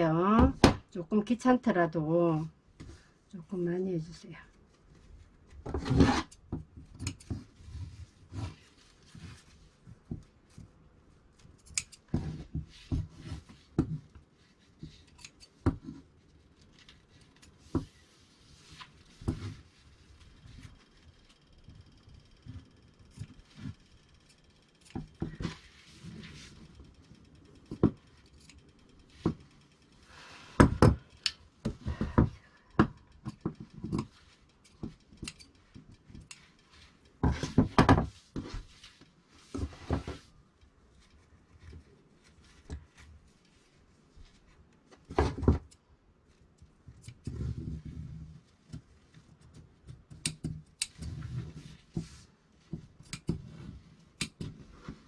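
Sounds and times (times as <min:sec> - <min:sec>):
fabric rustling: 0:07.3 - 0:11.6.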